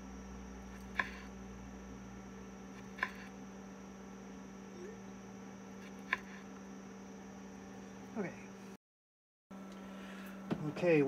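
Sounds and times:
steady low hum: 0.0 - 8.8, 9.5 - 11.0
knife striking cutting board: 2.8 - 3.3.

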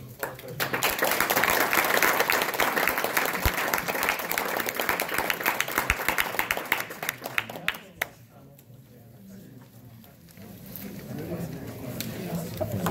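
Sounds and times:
audience clapping: 0.0 - 8.2.

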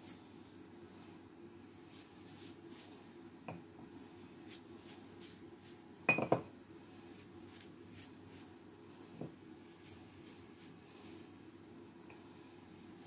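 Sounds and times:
faint room hum: 0.0 - 13.0
kitchenware clinking: 6.1 - 6.5.

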